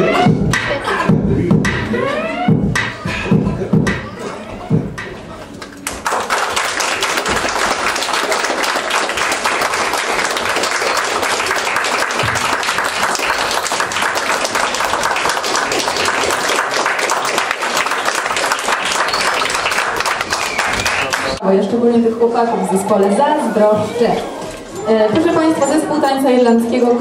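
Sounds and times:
audience applauding: 5.6s - 21.4s.

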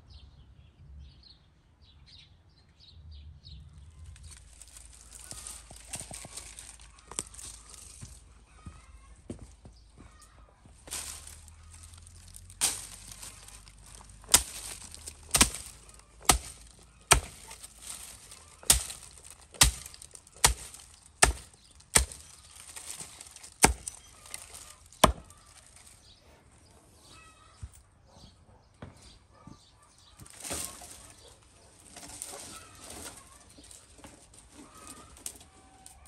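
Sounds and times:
dry twigs rustling: 3.8s - 27.7s, 30.0s - 36.0s
dry branches snapping: 4.0s - 8.4s, 10.7s - 26.0s, 30.2s - 36.0s.

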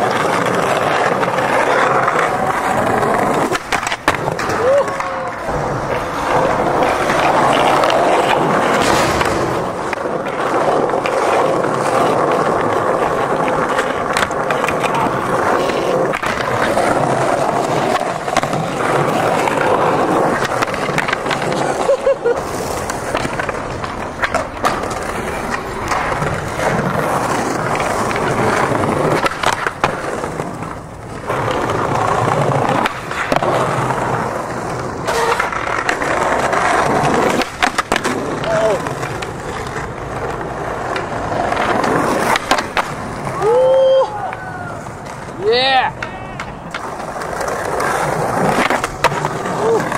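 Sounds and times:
skateboard clacks: 0.0s - 49.9s
skateboard wheels rolling on stone: 0.0s - 49.9s.

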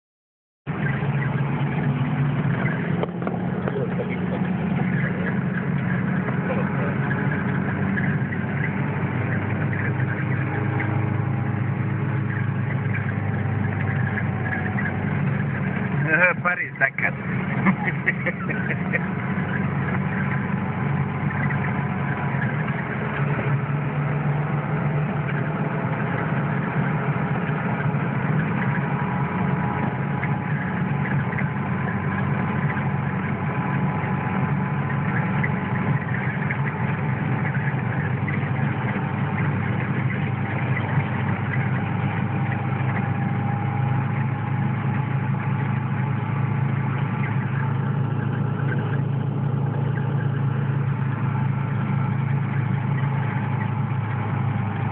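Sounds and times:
car engine drone inside cabin: 0.7s - 54.9s.

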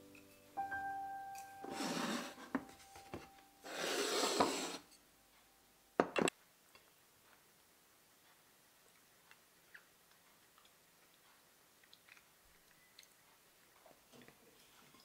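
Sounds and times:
tableware scraping on wood: 1.7s - 5.0s.

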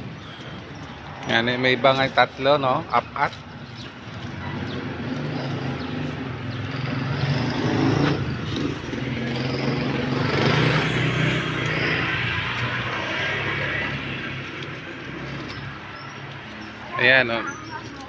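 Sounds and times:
vehicle engine passing by: 4.1s - 17.6s.

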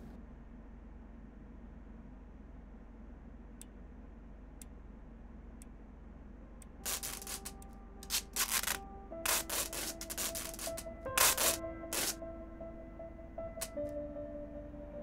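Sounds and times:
packing tape pulled from dispenser: 6.8s - 12.2s
music with held notes: 6.8s - 15.0s.

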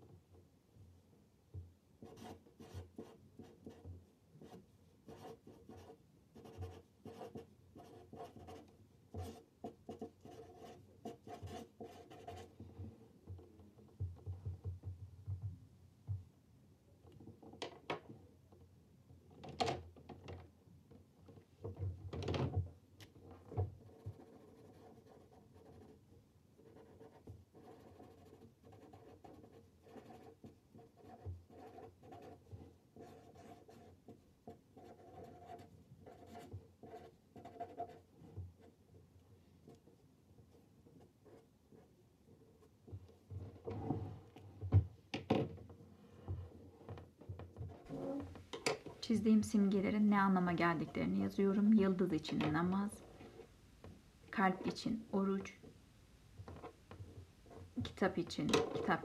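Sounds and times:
marker scratching on paper: 2.0s - 12.5s, 23.8s - 26.0s, 26.6s - 38.8s.

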